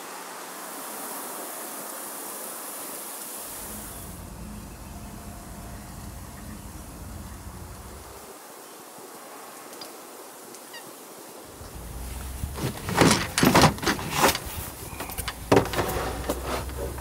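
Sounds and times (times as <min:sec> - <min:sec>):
faint bird chirps: 0:03.4 - 0:08.8, 0:14.7 - 0:15.5
box knocking and clattering: 0:12.6 - 0:14.5.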